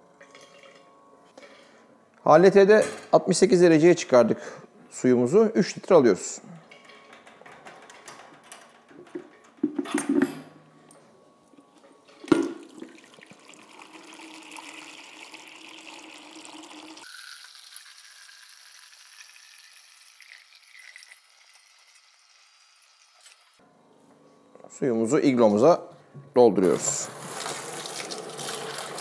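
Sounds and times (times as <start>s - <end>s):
knocks of hose fittings and jug: 9.0s - 10.4s
water running from hose into jug: 12.4s - 23.5s, 26.6s - 29.0s.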